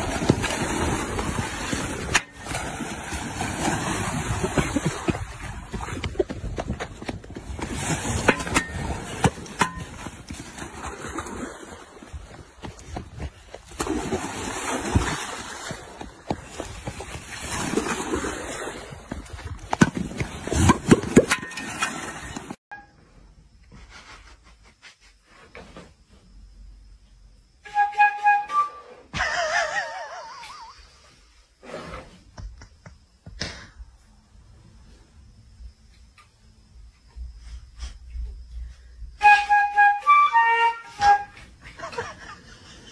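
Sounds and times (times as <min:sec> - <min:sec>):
flute notes: 0:27.6 - 0:29.1, 0:39.2 - 0:41.5.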